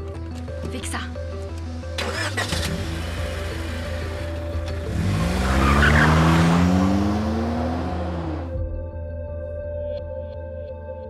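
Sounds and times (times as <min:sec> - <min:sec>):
background music: 0:00.0 - 0:11.0
car engine revving: 0:02.0 - 0:08.6
tyres squealing: 0:05.1 - 0:08.0.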